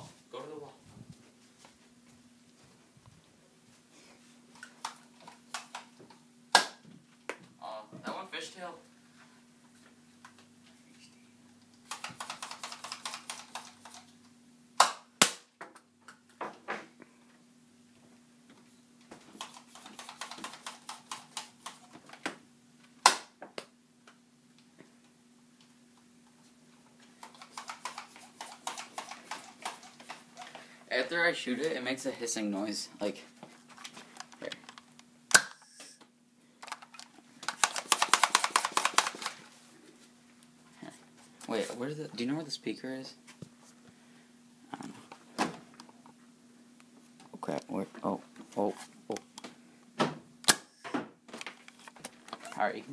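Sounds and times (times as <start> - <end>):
sharp crack: 6.5 - 6.8, 14.8 - 15.5, 23.0 - 23.4
dart blaster clicks: 37.5 - 39.3.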